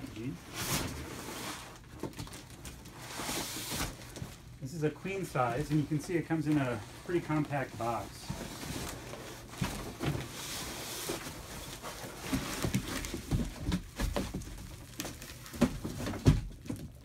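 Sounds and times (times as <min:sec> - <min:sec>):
plastic rustling: 0:00.0 - 0:17.0.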